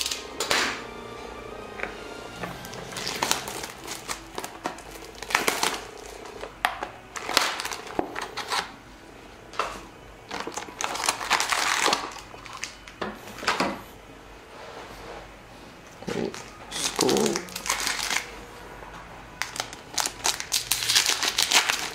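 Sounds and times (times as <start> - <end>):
plastic wrap and cardboard crinkling: 2.6 - 8.8, 9.6 - 13.6, 16.0 - 18.5, 19.4 - 21.9.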